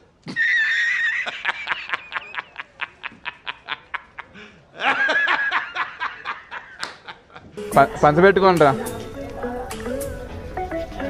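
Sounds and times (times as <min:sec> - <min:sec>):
man laughing hard: 0:00.3 - 0:07.6.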